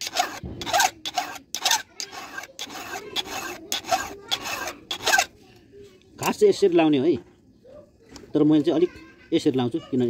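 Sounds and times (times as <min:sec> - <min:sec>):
file scraping saw chain: 0:00.0 - 0:05.3.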